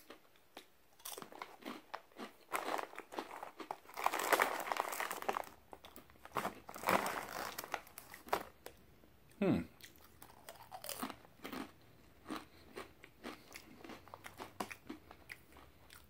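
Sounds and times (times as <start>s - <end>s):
chips being chewed: 0.0s - 8.8s, 9.8s - 16.0s
plastic chip bag crinkling: 1.0s - 8.8s.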